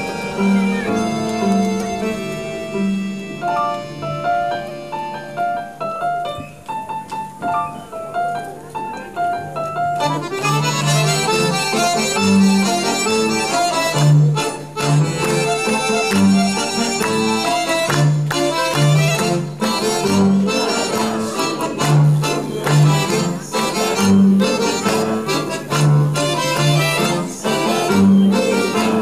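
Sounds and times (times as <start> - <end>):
accordion orchestra playing: 0.0 - 6.2, 9.6 - 29.0.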